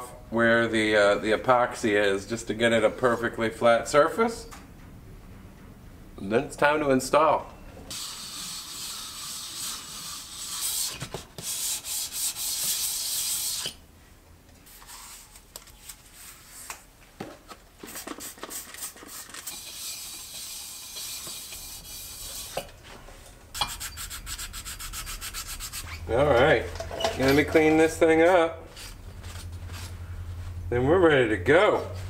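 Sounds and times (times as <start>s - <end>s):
metal scraping on sandpaper: 7.9s - 13.8s, 18.0s - 22.7s, 23.6s - 26.5s.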